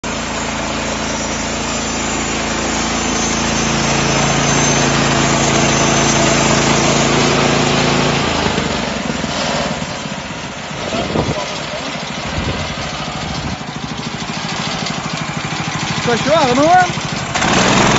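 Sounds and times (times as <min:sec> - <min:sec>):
bandsaw cutting log: 0:00.0 - 0:10.1, 0:14.0 - 0:17.9
sawmill petrol engine running: 0:00.0 - 0:17.9.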